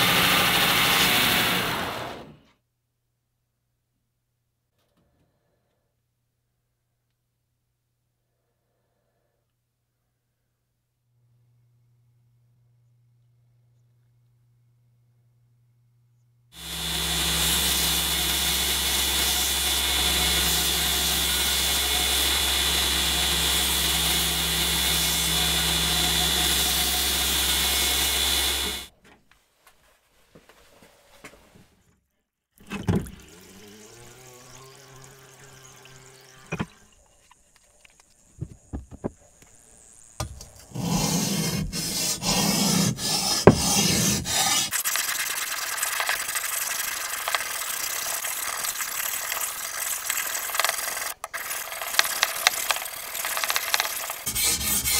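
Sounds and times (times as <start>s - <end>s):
belt grinder running: 16.6s - 28.9s, 33.2s - 36.7s, 38.7s - 54.9s
water pouring into metal pan: 44.7s - 54.3s.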